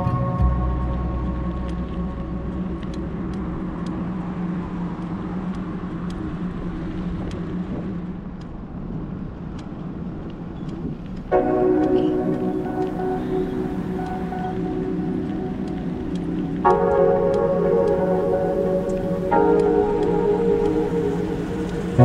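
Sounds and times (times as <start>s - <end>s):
background music: 0.0s - 4.1s, 11.3s - 22.0s
steady low hum: 0.0s - 9.2s
street traffic: 0.0s - 22.0s.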